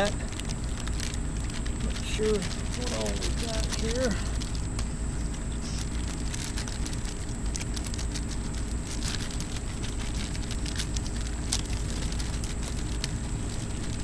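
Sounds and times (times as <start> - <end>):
plastic packaging crinkling: 0.0 - 14.0.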